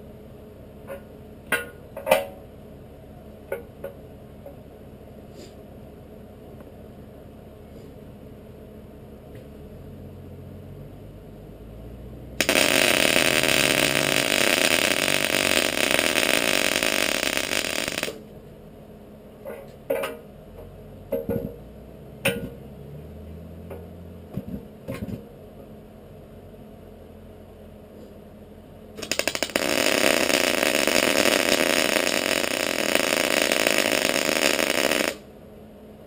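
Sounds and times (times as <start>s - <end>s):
arc welding crackle: 12.4s - 18.2s, 29.0s - 35.3s.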